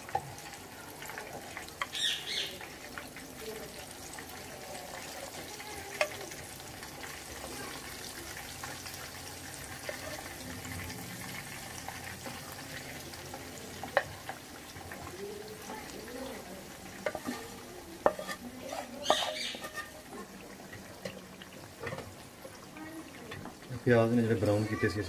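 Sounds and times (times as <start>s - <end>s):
food sizzling in a wok: 0.0s - 25.0s
wooden spoon clattering on pan: 16.9s - 21.2s.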